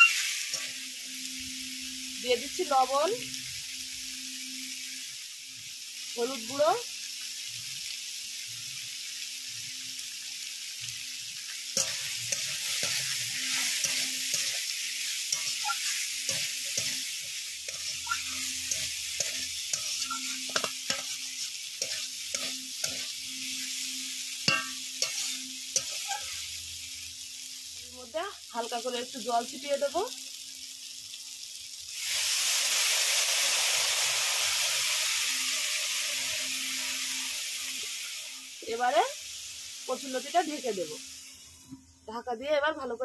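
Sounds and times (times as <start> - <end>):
metal spatula scraping a pan: 0.0 - 5.0, 11.4 - 26.5
vegetables sizzling in hot oil: 0.0 - 43.0.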